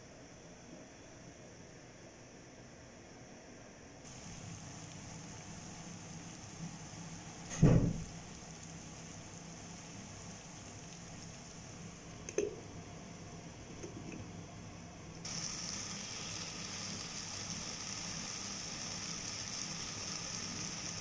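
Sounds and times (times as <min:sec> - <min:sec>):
onions cooking in a pot: 0:04.1 - 0:21.0
loud thump: 0:07.5 - 0:08.1.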